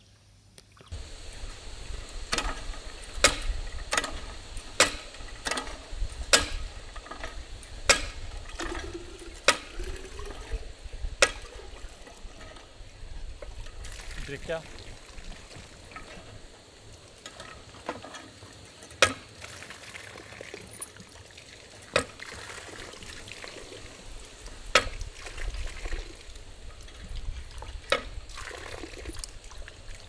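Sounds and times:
water trickling and splashing: 0:00.6 - 0:30.0
sharp knocks: 0:02.3 - 0:07.2, 0:07.9 - 0:08.8.

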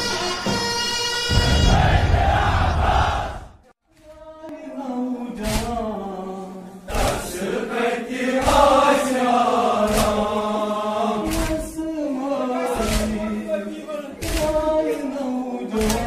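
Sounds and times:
men chanting a lament: 0:04.2 - 0:16.0.

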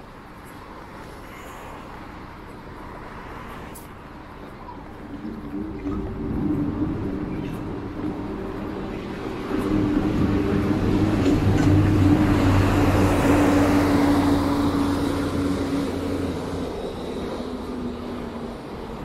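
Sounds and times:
large vehicle passing: 0:04.9 - 0:19.0.

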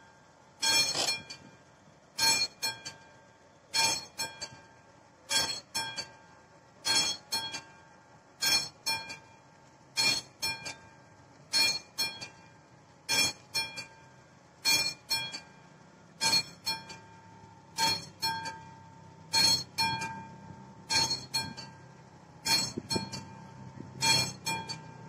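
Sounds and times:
mechanical level crossing bell: 0:00.6 - 0:01.5, 0:03.8 - 0:04.6, 0:05.3 - 0:06.2, 0:06.8 - 0:07.7, 0:08.4 - 0:09.4, 0:10.0 - 0:10.9, 0:11.5 - 0:12.4, 0:13.1 - 0:15.6, 0:16.2 - 0:21.8, 0:22.4 - 0:25.0.

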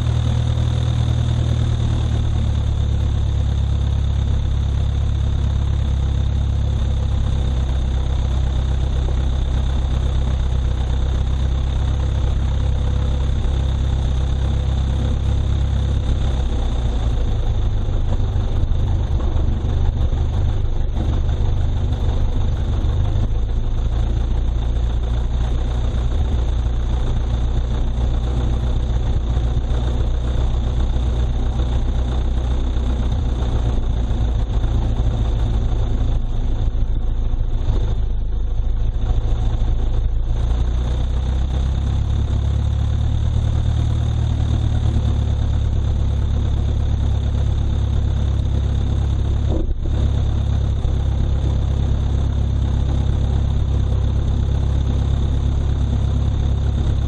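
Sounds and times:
small airplane engine running: 0:00.0 - 0:57.0.

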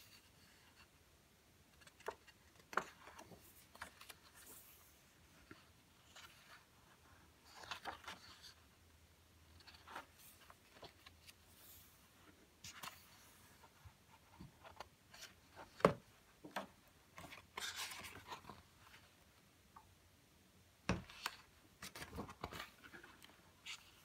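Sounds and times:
paper pages rustling: 0:01.7 - 0:08.6, 0:09.5 - 0:19.1, 0:21.1 - 0:24.0
pages tapping and knocking: 0:01.8 - 0:04.4, 0:14.4 - 0:18.5.

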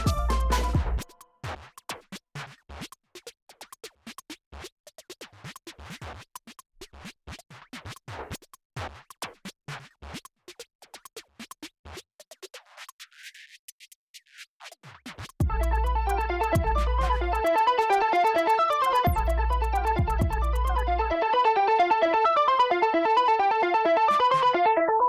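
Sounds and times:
melodic music: 0:00.0 - 0:01.0, 0:15.5 - 0:25.0
percussive background music: 0:00.0 - 0:03.0, 0:15.0 - 0:21.8.

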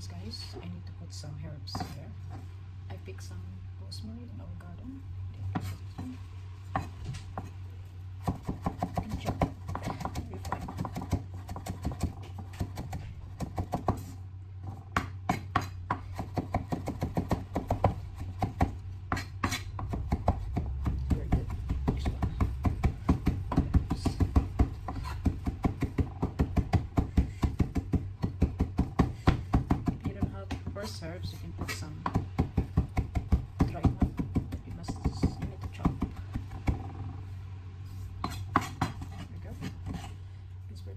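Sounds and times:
steady low hum: 0:00.0 - 0:40.9
knife chopping on wooden board: 0:08.2 - 0:14.1, 0:14.7 - 0:31.0, 0:31.6 - 0:36.9, 0:38.2 - 0:40.1.

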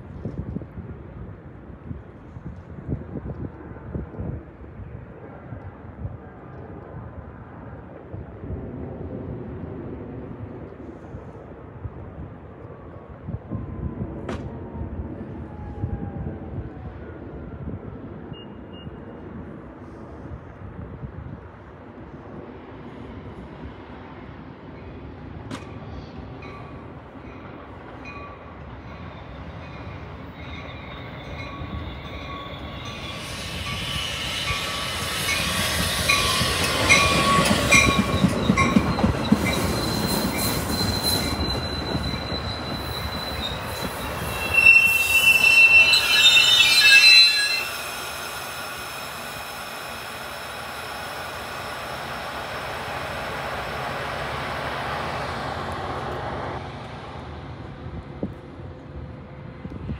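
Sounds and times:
train rumbling on rails: 0:00.0 - 0:59.9
train wheels squealing: 0:26.0 - 0:52.7.

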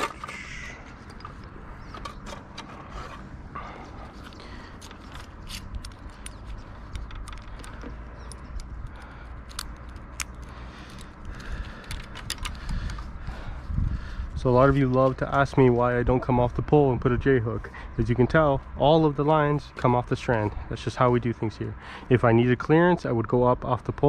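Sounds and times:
low steady rumble: 0:00.1 - 0:22.5
cable and hardware clicking: 0:04.2 - 0:13.1.

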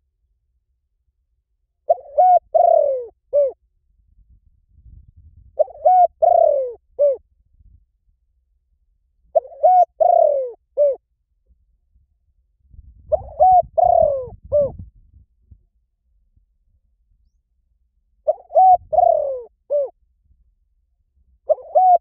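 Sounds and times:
dove cooing: 0:01.9 - 0:03.6, 0:05.6 - 0:07.2, 0:09.3 - 0:11.0, 0:13.1 - 0:14.8, 0:18.2 - 0:20.0, 0:21.5 - 0:22.0.

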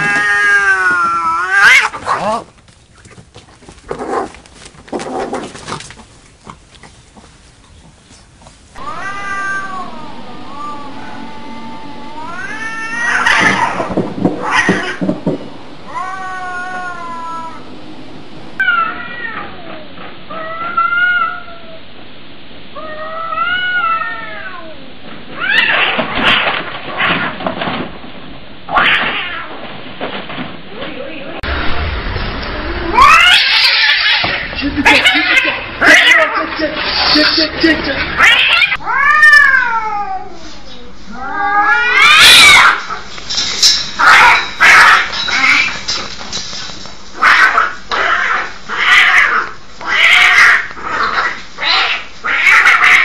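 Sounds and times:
cat yowling: 0:00.0 - 0:02.3, 0:08.8 - 0:15.2, 0:15.9 - 0:17.7, 0:32.8 - 0:36.4, 0:38.2 - 0:40.3, 0:41.1 - 0:43.0
harsh noisy cat outburst: 0:00.0 - 0:02.5, 0:08.8 - 0:17.9, 0:28.7 - 0:29.6, 0:32.6 - 0:40.3, 0:41.1 - 0:43.1, 0:47.2 - 0:53.0.

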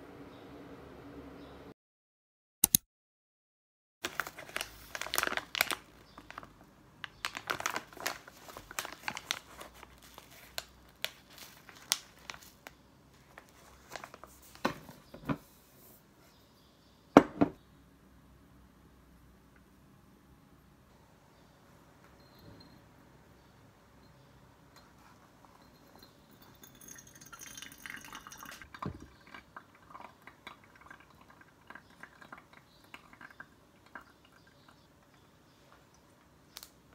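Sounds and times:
foil bag crinkling: 0:04.0 - 0:14.6.

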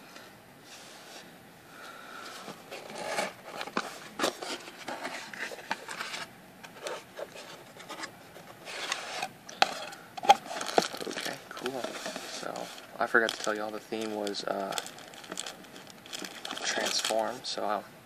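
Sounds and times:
cardboard rustling: 0:02.3 - 0:17.5
cardboard flaps scraping: 0:02.4 - 0:09.3, 0:10.2 - 0:17.4.

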